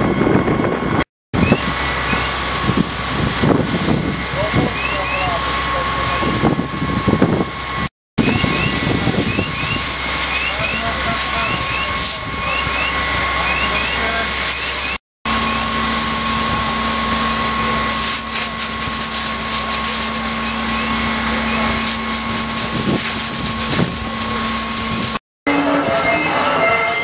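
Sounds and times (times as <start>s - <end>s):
machine whine and hum: 0.0s - 27.0s
hose nozzle spraying water: 1.4s - 6.4s, 8.2s - 16.2s, 17.3s - 25.2s.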